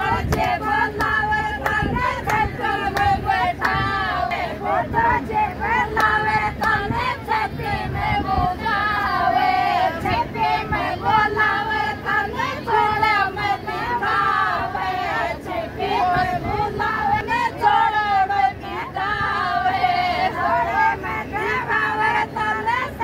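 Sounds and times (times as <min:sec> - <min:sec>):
group of women singing: 0:00.0 - 0:23.0.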